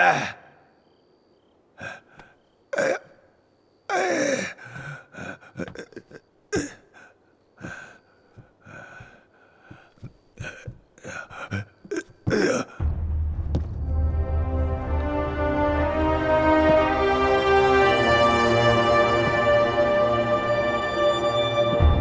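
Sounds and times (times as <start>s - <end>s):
man gasping and groaning: 8.6s - 12.9s
music: 12.8s - 22.0s.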